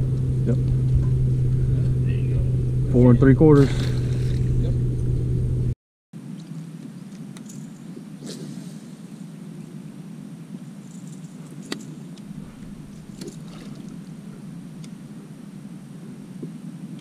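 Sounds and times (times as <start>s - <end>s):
steady low hum: 0.0s - 17.0s
small splash on water: 13.1s - 14.0s.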